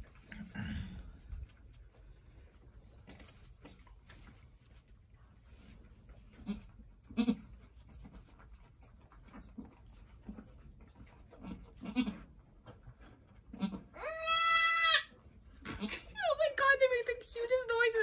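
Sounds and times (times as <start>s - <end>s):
goat bleating: 6.4s - 7.5s, 11.4s - 12.3s, 13.5s - 16.2s.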